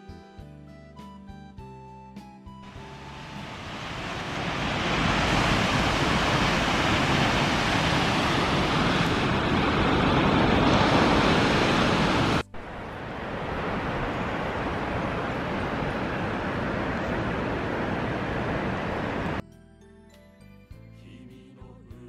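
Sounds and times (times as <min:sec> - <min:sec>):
waterfall roaring: 0:02.7 - 0:19.4.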